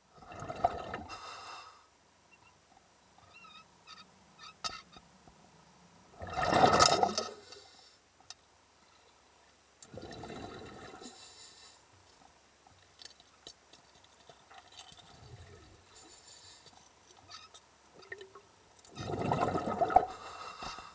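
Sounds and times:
water gurgling and bubbling: 0:00.2 - 0:01.1, 0:06.2 - 0:07.2, 0:09.9 - 0:11.0, 0:18.9 - 0:20.2.

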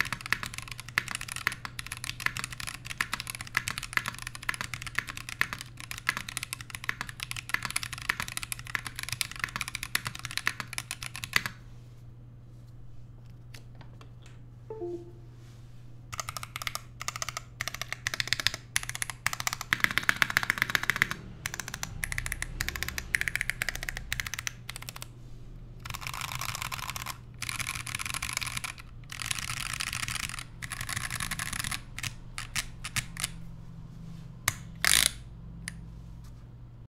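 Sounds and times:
mechanical keyboard typing: 0:00.0 - 0:11.6, 0:16.1 - 0:25.1, 0:25.8 - 0:33.4, 0:34.5 - 0:35.8.

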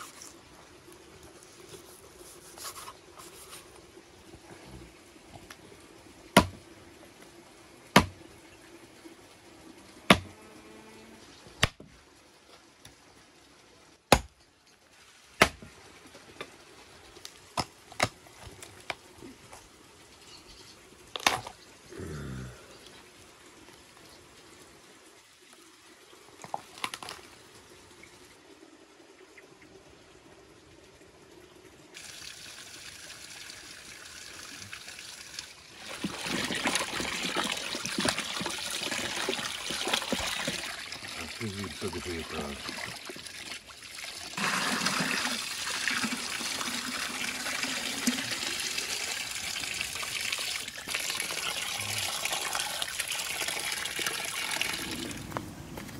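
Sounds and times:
cleaver chopping bone: 0:06.4 - 0:06.6, 0:08.0 - 0:08.2, 0:10.1 - 0:10.3, 0:14.1 - 0:14.3, 0:15.4 - 0:15.6
water trickling from spout: 0:22.6 - 0:55.2.

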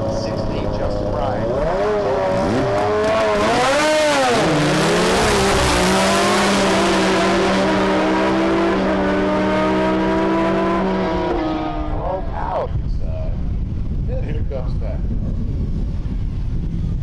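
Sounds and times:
snowmobile engine revving: 0:00.0 - 0:12.7
motorcycle racing: 0:00.0 - 0:17.0.

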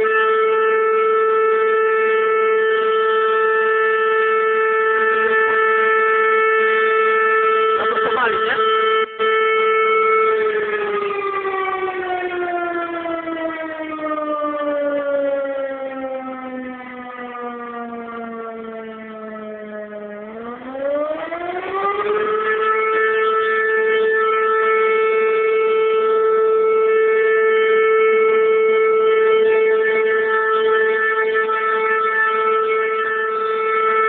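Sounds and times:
fire alarm siren wailing: 0:00.0 - 0:34.0.

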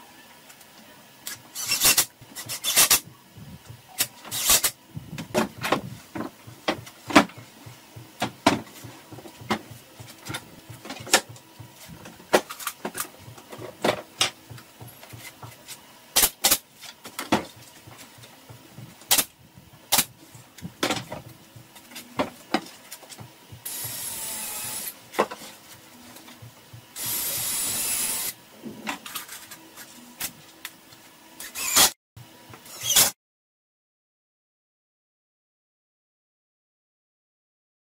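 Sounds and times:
cordless drill driving screws: 0:04.3 - 0:04.7, 0:23.7 - 0:25.0, 0:27.0 - 0:28.4, 0:31.5 - 0:31.9.

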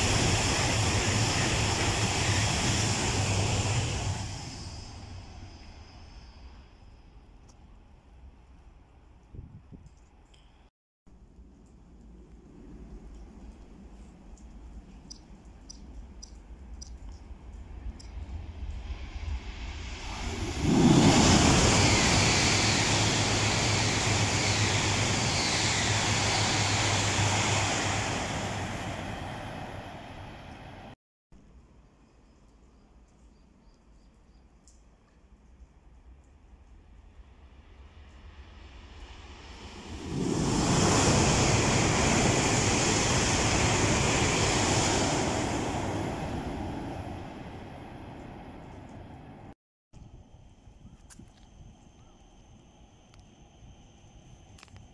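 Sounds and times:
high-speed train passing: 0:00.0 - 0:07.4, 0:12.5 - 0:31.0, 0:37.4 - 0:50.8.

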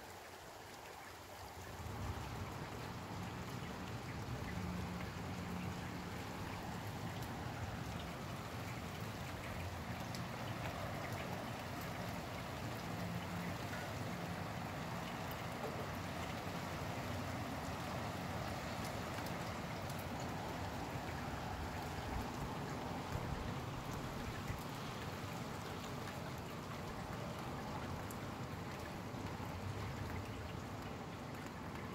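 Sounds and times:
steady rain falling: 0:00.0 - 0:31.9.

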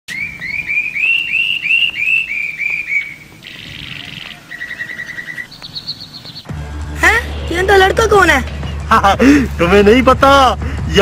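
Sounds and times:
bird buzzy call: 0:00.1 - 0:06.5
bird rapid chirps: 0:00.1 - 0:06.5
bird whistling song: 0:00.1 - 0:06.5.

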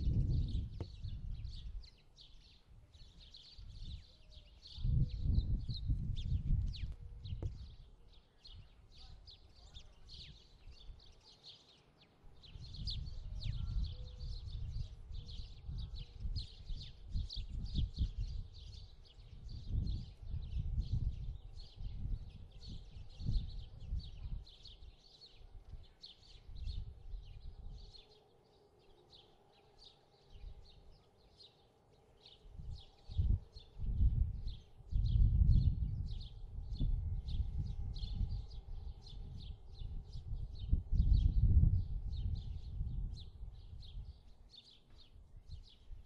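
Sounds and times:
uneven low rumble: 0:00.0 - 0:01.8, 0:32.6 - 0:44.2
small birds chirping: 0:00.0 - 0:46.0.

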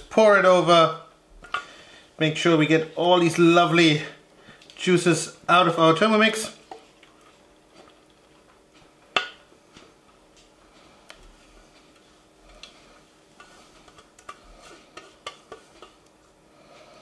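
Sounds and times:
spatula scraping in metal bowl: 0:13.3 - 0:16.1.

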